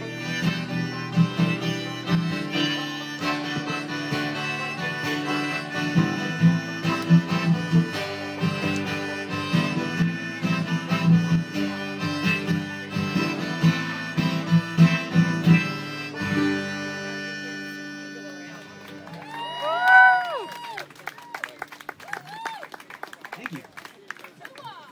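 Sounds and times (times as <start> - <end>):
strummed acoustic guitar: 0.0 - 19.2
picked banjo: 0.0 - 19.5
lead melody: 0.0 - 20.3.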